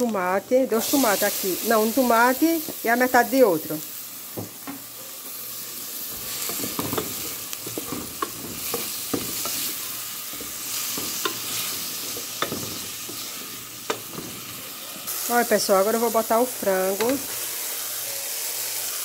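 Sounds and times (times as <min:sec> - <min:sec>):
vegetables sizzling in oil: 0:00.0 - 0:19.0
wooden spoon knocking pot: 0:06.4 - 0:09.8.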